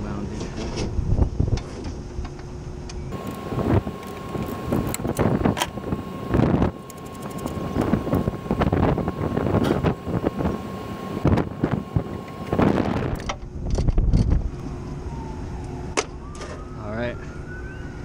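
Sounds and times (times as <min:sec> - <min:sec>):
wind buffeting microphone: 0:00.9 - 0:01.7, 0:03.1 - 0:14.6
faint steady whine: 0:02.3 - 0:17.4.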